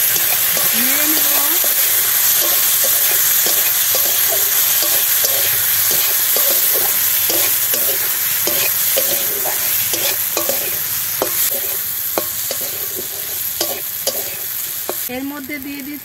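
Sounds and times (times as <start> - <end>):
metal spatula scraping pan: 0.0 - 15.1
vegetables sizzling in hot oil: 0.0 - 16.0.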